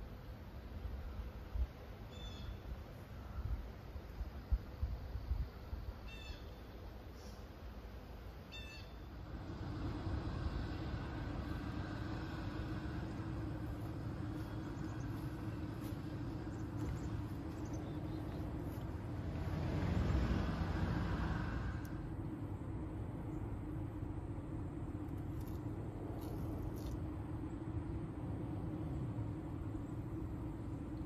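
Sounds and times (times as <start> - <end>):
road traffic rumble: 0.0 - 31.0
vehicle passing: 9.1 - 31.0.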